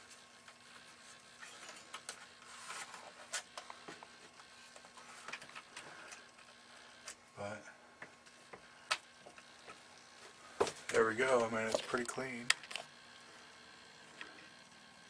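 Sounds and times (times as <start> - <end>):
handling clicks and rustling: 10.7 - 12.9.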